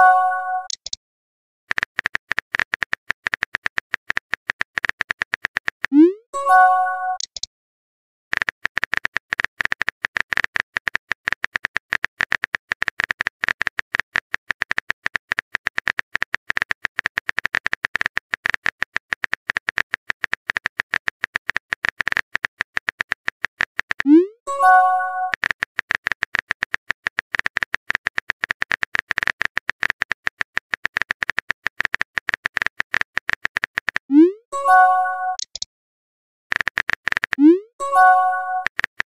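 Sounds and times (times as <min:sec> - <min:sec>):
phone keyboard clicking: 0:01.7 - 0:05.9, 0:08.3 - 0:24.1, 0:25.2 - 0:34.1, 0:35.4 - 0:35.7, 0:36.5 - 0:37.4.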